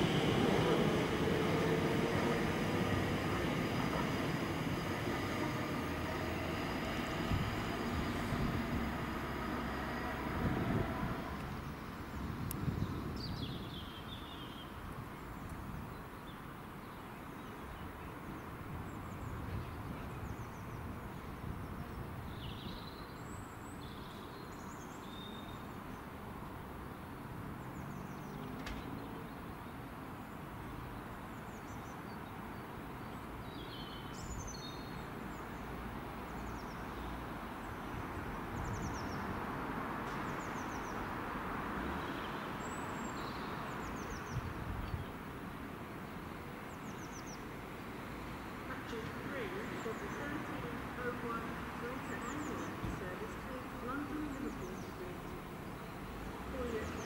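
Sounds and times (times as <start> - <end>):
distant train rumble: 0.0 - 13.7, 35.0 - 57.0
outdoor background noise: 0.0 - 57.0
small birds chirping: 48.8 - 57.0.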